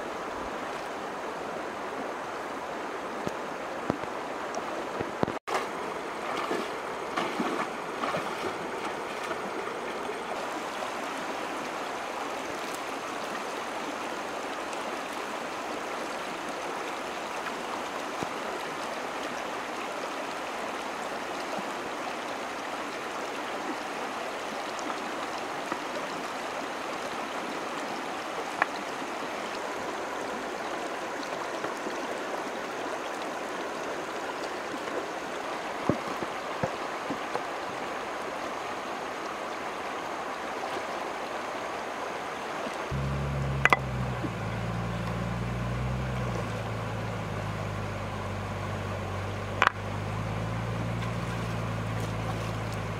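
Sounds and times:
stream gurgling over stones: 0.0s - 52.9s
bare feet splashing in water: 5.4s - 10.4s, 43.0s - 52.9s.

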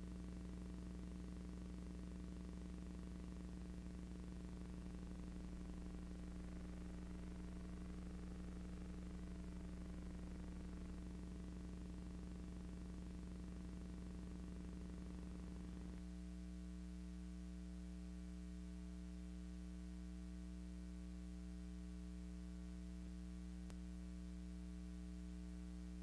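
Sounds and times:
low electrical hum: 0.0s - 26.0s
faint click: 23.6s - 23.9s.

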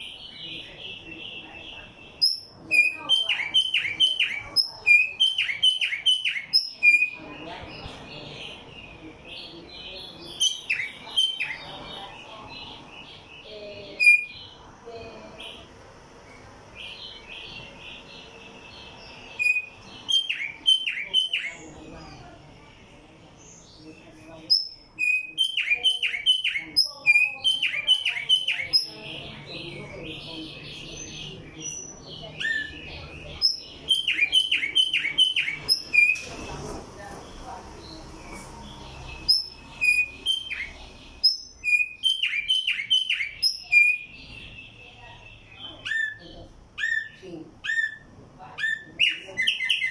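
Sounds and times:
songbird singing: 0.0s - 49.9s
sharp high chirps: 38.9s - 44.8s.

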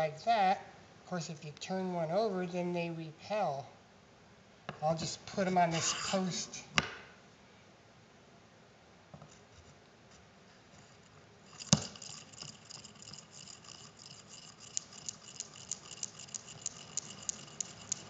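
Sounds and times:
steel balls clacking: 11.5s - 18.0s.

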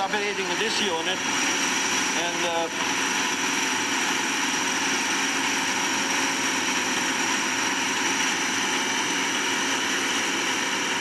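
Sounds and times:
turbine rushing with high whine: 0.0s - 11.0s.

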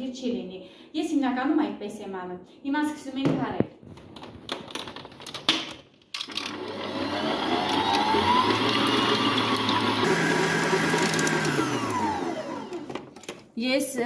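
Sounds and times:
stand mixer motor whine: 6.3s - 13.1s.

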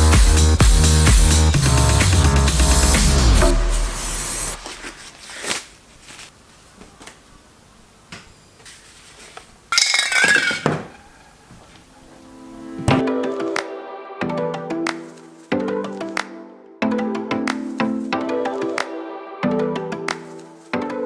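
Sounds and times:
electronic music: 0.0s - 5.0s, 12.1s - 21.0s
metal cans clinking together: 9.7s - 11.0s.

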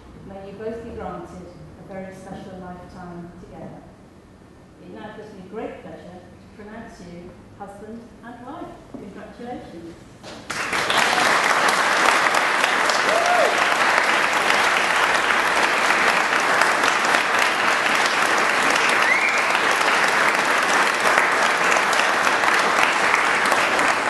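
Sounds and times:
crowd applauding: 10.5s - 24.0s.

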